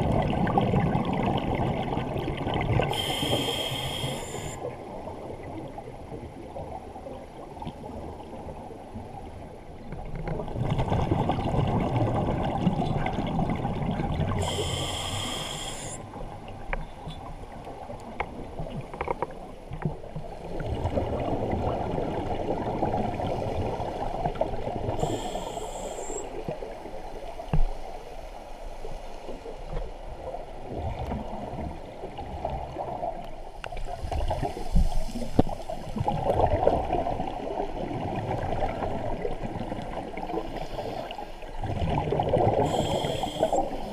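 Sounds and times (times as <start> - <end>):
muffled gurgling exhaled bubbles: 0.0 - 27.5, 30.2 - 43.9
high hissing regulator inhale: 2.9 - 4.7, 14.4 - 16.0, 25.0 - 26.3, 42.6 - 43.9.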